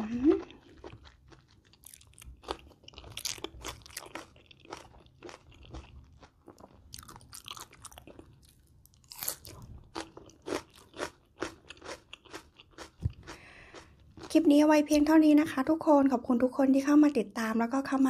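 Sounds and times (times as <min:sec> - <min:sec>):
crisp chewing crunches: 0:00.3 - 0:14.4.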